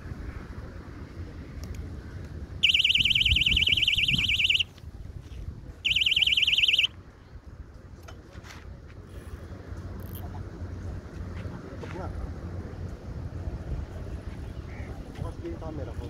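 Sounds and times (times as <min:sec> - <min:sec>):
warbling alarm buzzer: 0:02.6 - 0:04.6, 0:05.8 - 0:06.9.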